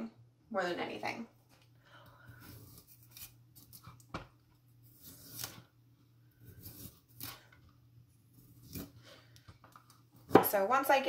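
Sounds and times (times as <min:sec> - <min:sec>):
knife cutting vegetable stalks: 0:02.4 - 0:04.1, 0:04.9 - 0:05.7, 0:06.4 - 0:07.5, 0:08.4 - 0:09.1.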